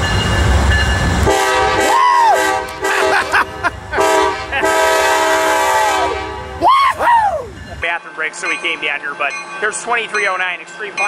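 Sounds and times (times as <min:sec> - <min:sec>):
diesel locomotive rumbling: 0:00.0 - 0:11.0
train air horn chord: 0:01.3 - 0:03.2, 0:04.0 - 0:06.6.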